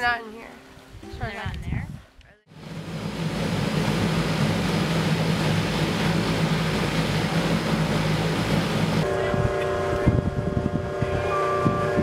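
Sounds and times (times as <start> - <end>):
rushing air noise: 2.5 - 12.0
plane engines droning: 2.6 - 12.0.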